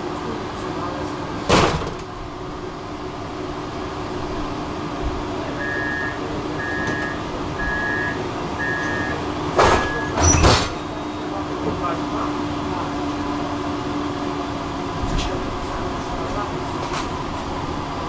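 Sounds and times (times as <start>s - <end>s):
tram equipment humming: 0.0s - 18.0s
door warning beeps: 5.6s - 11.3s.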